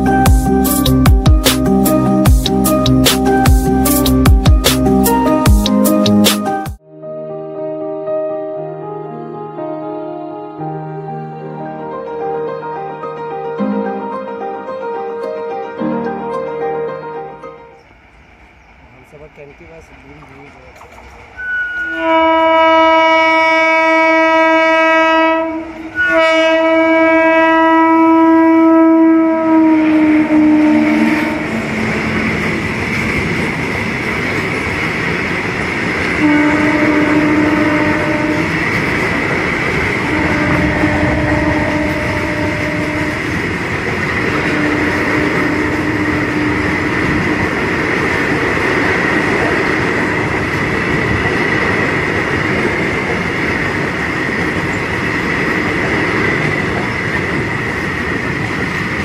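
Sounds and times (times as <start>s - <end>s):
train wagons rumbling and clattering: 17.8s - 59.0s
high-pitched wheel squeal: 21.4s - 22.0s
locomotive air horn blasts: 21.4s - 32.0s, 36.2s - 38.8s, 40.0s - 43.5s, 44.3s - 47.6s.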